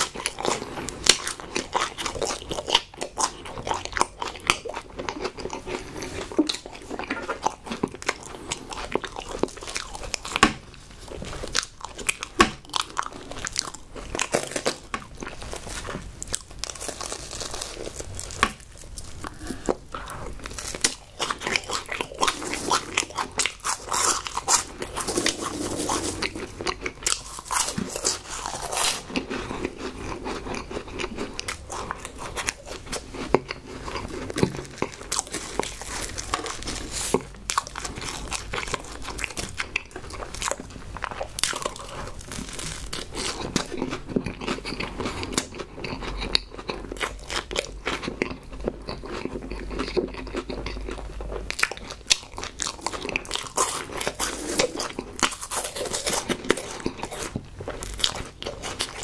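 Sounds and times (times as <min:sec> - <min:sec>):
crunching and chewing snacks: 0:00.0 - 0:59.0.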